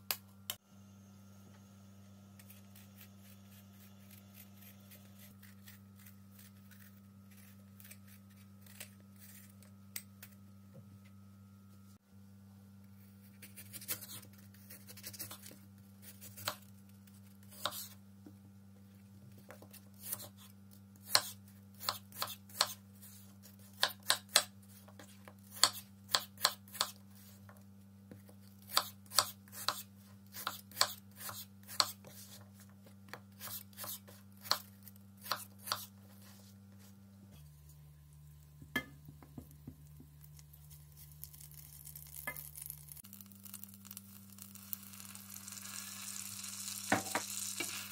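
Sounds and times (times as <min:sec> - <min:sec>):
steady low hum: 0:00.0 - 0:41.4
knife cutting on wooden board: 0:28.7 - 0:32.4, 0:33.4 - 0:36.0
butter sizzling in a saucepan: 0:41.2 - 0:47.9.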